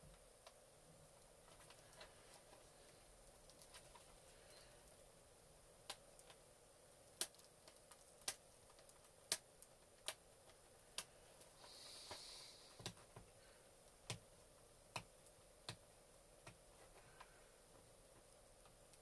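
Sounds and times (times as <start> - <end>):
faint clicks and taps: 7.1 - 19.0
short soft hiss: 11.6 - 12.8.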